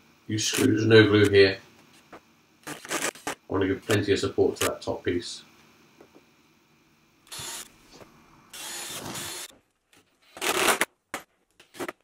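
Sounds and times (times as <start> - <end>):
cordless drill driving screws: 7.3 - 7.7, 8.5 - 9.5.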